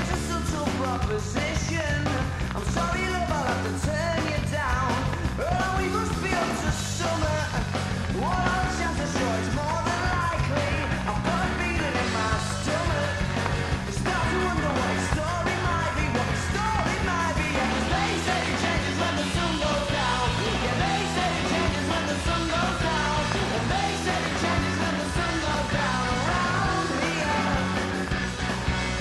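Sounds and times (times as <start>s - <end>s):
man singing: 0.0s - 28.2s
fast indie rock song: 0.0s - 29.0s.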